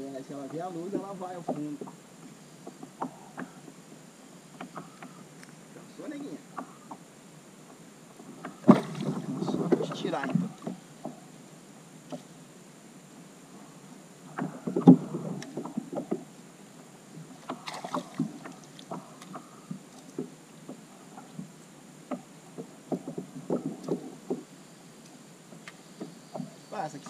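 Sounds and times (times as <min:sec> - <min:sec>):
knocks and bumps on kayak: 0:00.5 - 0:02.0, 0:07.7 - 0:11.3, 0:14.3 - 0:16.3, 0:17.1 - 0:24.5.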